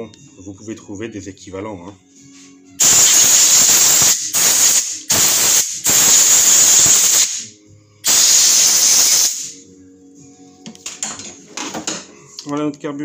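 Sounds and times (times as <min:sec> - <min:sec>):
compressed air hissing: 0:02.8 - 0:09.6.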